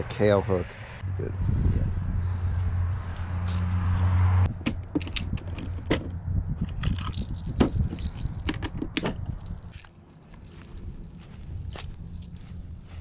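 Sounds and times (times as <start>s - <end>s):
fishing tackle clinking in box: 6.7s - 12.4s.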